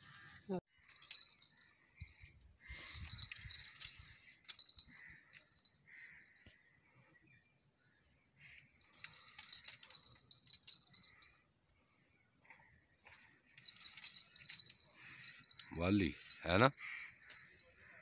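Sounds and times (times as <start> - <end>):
fishing reel whirring: 2.8 - 6.2, 13.6 - 18.0.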